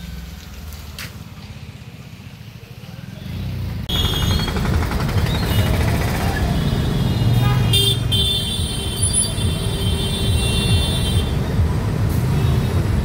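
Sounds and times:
vehicle engine hum: 0.0 - 7.6
road traffic: 0.0 - 13.0.

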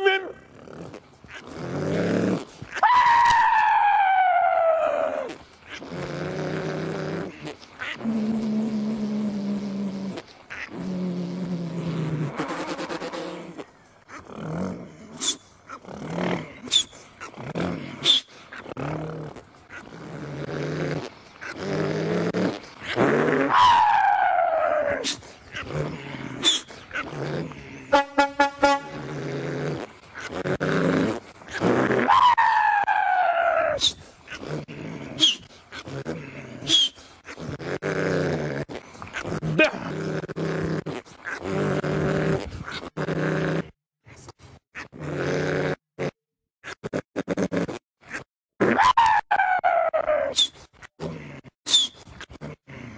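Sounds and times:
man imitating truck engine: 39.4 - 40.0.

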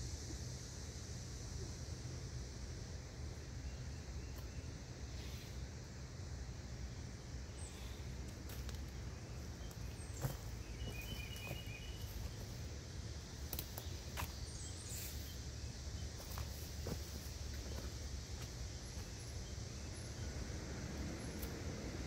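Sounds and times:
high chirping: 10.2 - 12.4.

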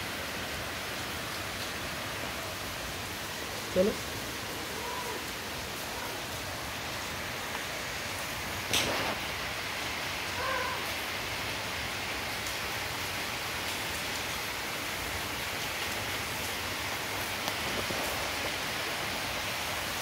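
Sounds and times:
steady hiss: 0.0 - 20.0
cat mewing: 4.6 - 6.3, 10.3 - 10.9.

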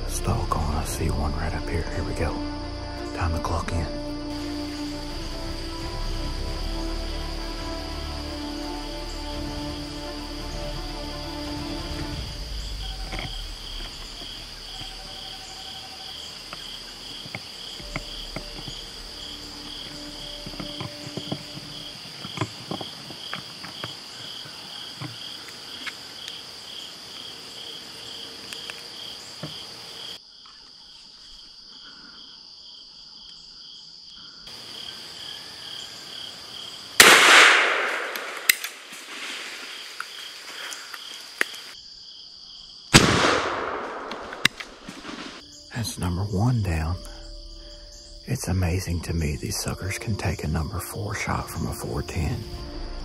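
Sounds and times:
insects calling: 0.0 - 53.0
shotgun shot: 37.0 - 38.9, 42.9 - 44.8.

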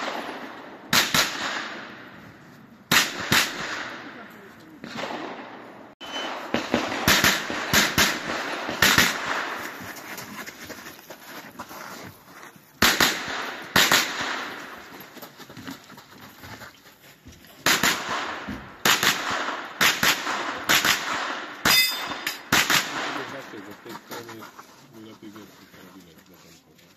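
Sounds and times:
gunshots with ring-out: 0.0 - 2.3, 2.9 - 9.8, 12.8 - 14.9, 17.6 - 23.8.

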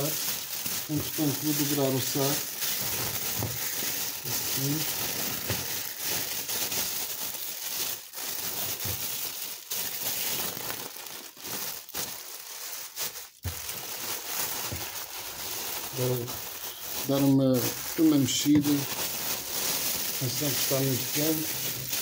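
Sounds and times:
plastic bag crinkling: 0.0 - 22.0.

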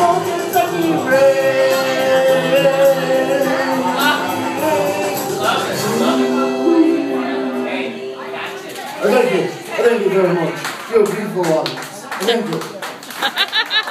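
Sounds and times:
man singing into microphone: 0.0 - 9.4
karaoke backing track: 0.0 - 11.4.

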